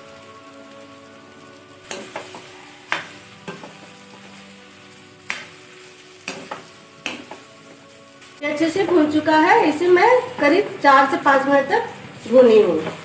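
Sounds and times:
light sizzle: 0:00.0 - 0:13.0
spoon stirring food in pan: 0:01.8 - 0:09.1.

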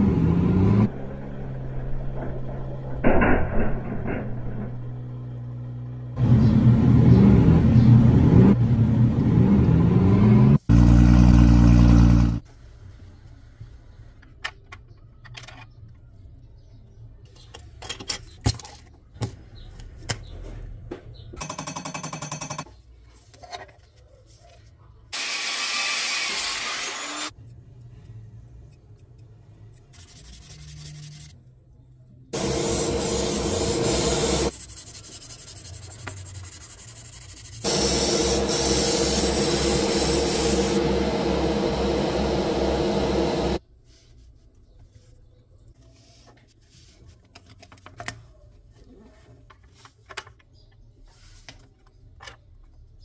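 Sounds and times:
low pulsing: 0:00.7 - 0:07.8
paint spraying hiss: 0:32.4 - 0:34.5, 0:37.6 - 0:40.8
tool noise and rubbing: 0:32.4 - 0:43.6.

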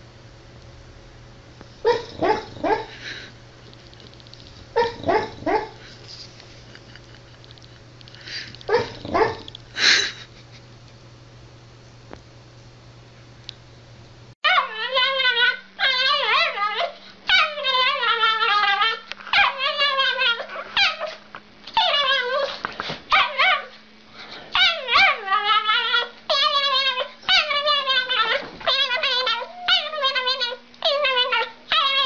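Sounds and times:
small dog howling: 0:14.4 - 0:21.2, 0:21.8 - 0:23.8, 0:24.6 - 0:32.0.

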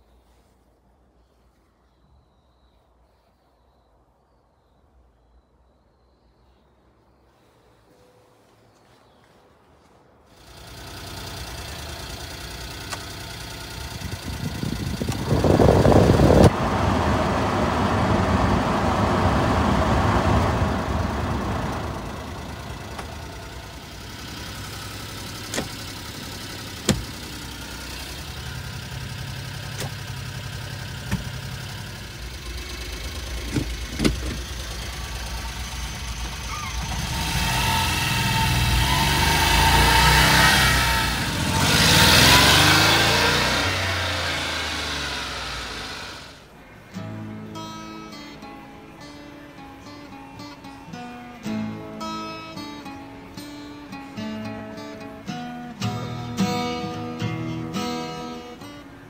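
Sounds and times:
small truck engine revving and idling: 0:10.4 - 0:46.6, 0:54.2 - 0:58.8.

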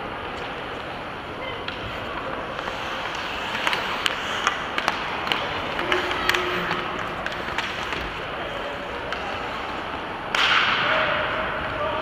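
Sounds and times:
hockey sticks clacking: 0:00.3 - 0:11.8
skates hissing on ice: 0:02.0 - 0:10.0.

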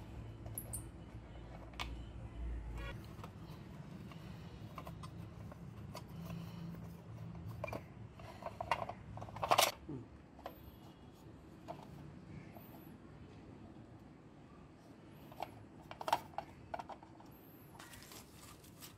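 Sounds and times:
plastic headlight parts clicking and rattling: 0:07.2 - 0:09.8, 0:15.2 - 0:18.0.

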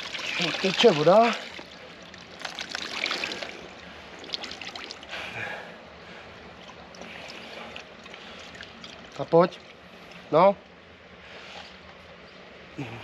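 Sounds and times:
small splashes: 0:00.0 - 0:05.2, 0:06.6 - 0:09.9
water trickling and dripping: 0:00.0 - 0:05.2, 0:06.5 - 0:10.3.

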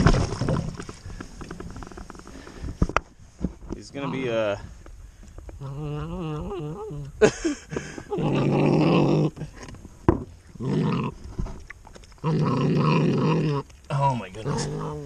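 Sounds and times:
puppy growling: 0:10.6 - 0:11.2, 0:14.4 - 0:15.0.

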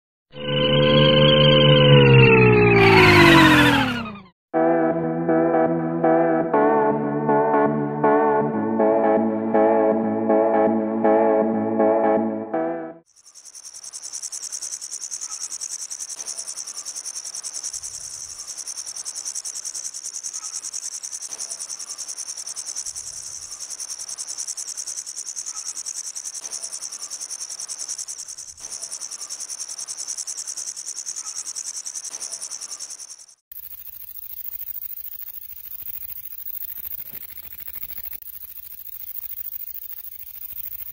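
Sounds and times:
grasshopper buzzing trill: 0:13.1 - 0:40.9.

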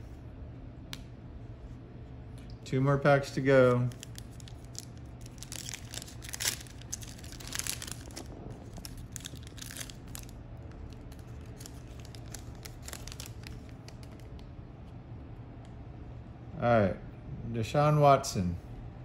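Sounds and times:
foil card pack tearing and crinkling: 0:03.6 - 0:14.3.

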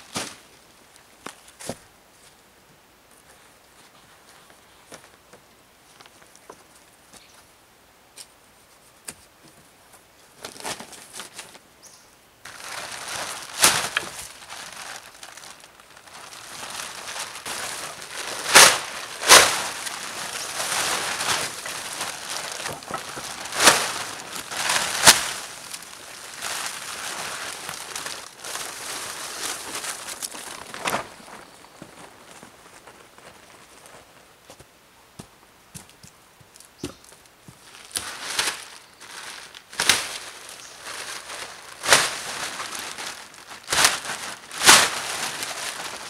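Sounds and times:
plastic tarp crinkling and flapping: 0:10.4 - 0:11.6, 0:12.5 - 0:34.2, 0:37.6 - 0:46.0
tarp sharp snaps: 0:12.5 - 0:28.8, 0:37.8 - 0:40.3, 0:41.0 - 0:46.0.

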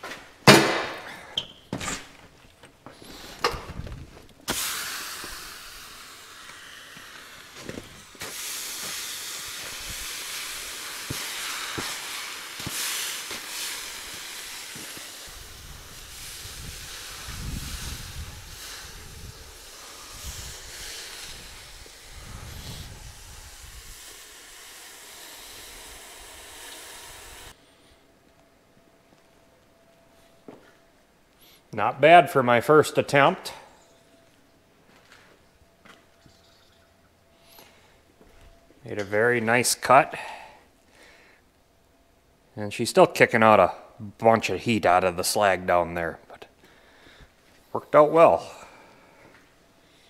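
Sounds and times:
hot steel hissing in snow: 0:04.4 - 0:27.9.

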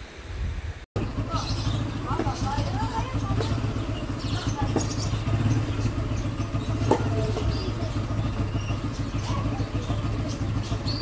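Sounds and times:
engine idling: 0:01.0 - 0:11.0
sharp tap: 0:06.8 - 0:07.6.

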